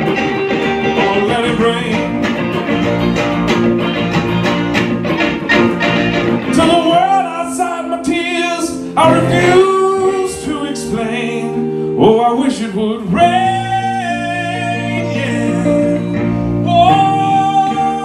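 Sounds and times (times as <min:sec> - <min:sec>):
electric guitars playing chords: 0:00.0 - 0:18.0
man singing: 0:00.6 - 0:02.4, 0:06.4 - 0:18.0.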